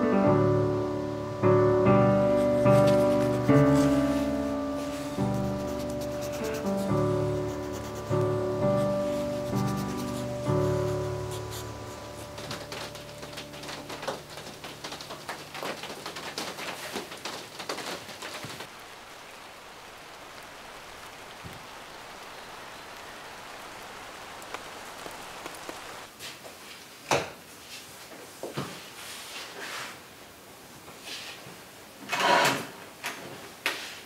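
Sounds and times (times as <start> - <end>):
rain hiss: 0.0 - 26.9
raindrops hitting close by: 8.8 - 26.1.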